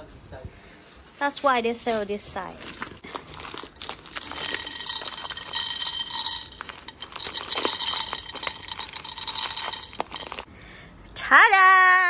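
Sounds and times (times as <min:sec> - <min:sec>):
popcorn kernels rattling in metal pan: 0:03.2 - 0:10.5.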